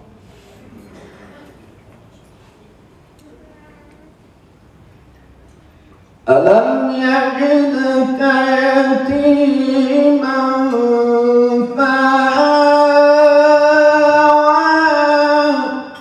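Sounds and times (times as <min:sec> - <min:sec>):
man chanting recitation: 0:06.2 - 0:16.0.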